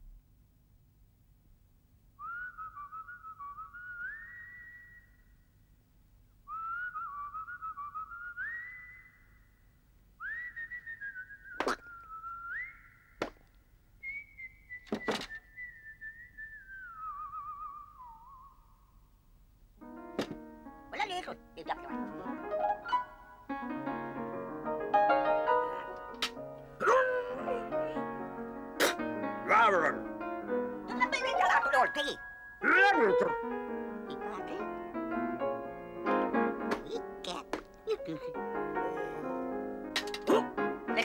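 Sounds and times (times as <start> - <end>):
person whistling a tune: 2.2 - 5.1, 6.5 - 9.2, 10.2 - 13.0, 14.0 - 18.6
sharp knocks: 20.2 - 20.4.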